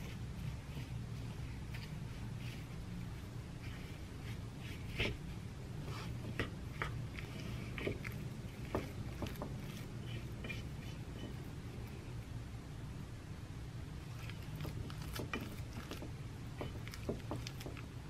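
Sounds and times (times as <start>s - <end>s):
low steady hum: 0.0s - 18.0s
spoon scraping in bowl: 5.9s - 11.5s.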